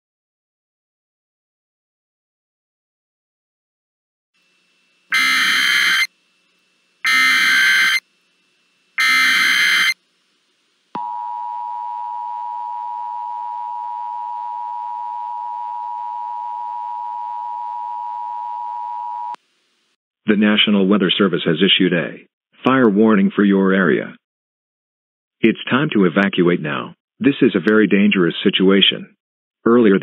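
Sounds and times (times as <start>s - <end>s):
loud steady attention tone: 4.4s - 19.5s
screeching digital header bursts: 5.1s - 6.1s, 7.0s - 8.1s, 9.0s - 10.0s.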